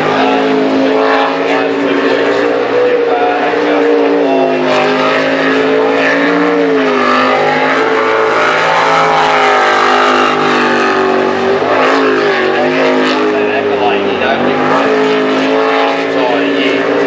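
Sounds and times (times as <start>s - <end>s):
boat engine revving: 0.0s - 17.0s.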